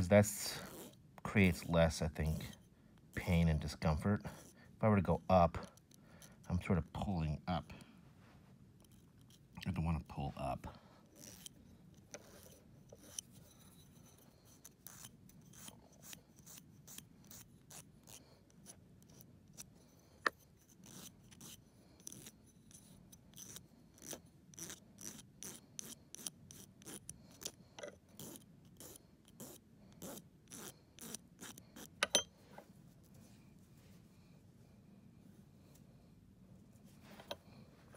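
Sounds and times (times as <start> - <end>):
nail file rasping on claw: 0.6 - 2.6, 11.1 - 32.2.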